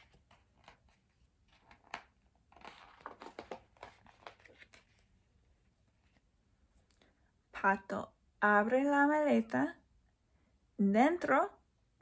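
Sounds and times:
book page rustling: 0.0s - 6.4s.

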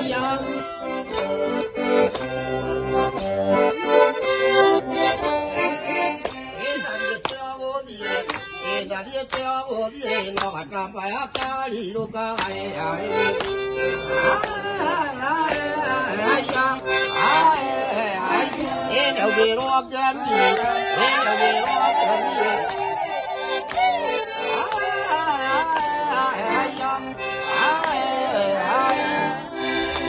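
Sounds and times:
button accordion playing dance tune: 0.0s - 30.0s
voices singing along: 14.0s - 30.0s.

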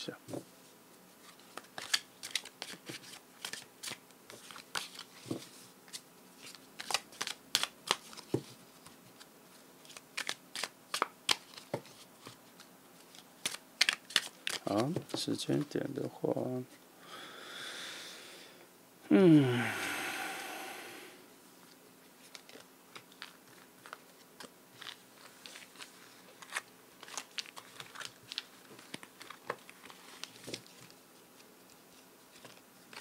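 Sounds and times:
cards being shuffled: 1.2s - 15.8s, 22.2s - 33.0s.

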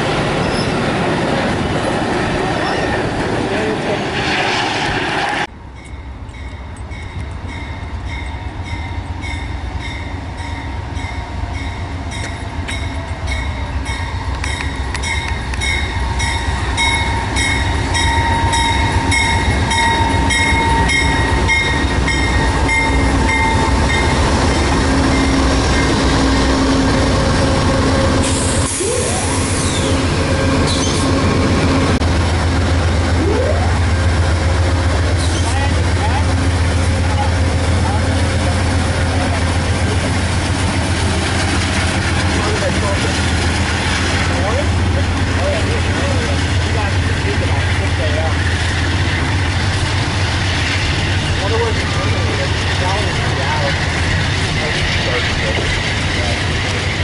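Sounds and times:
locomotive engine rumble: 0.0s - 57.0s
train bell ringing: 5.7s - 26.1s.

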